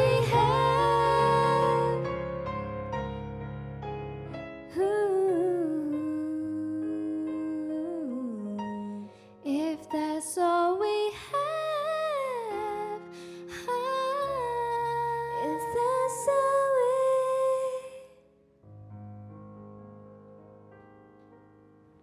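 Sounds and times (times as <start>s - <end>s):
sustained keyboard chords: 0.0s - 4.3s.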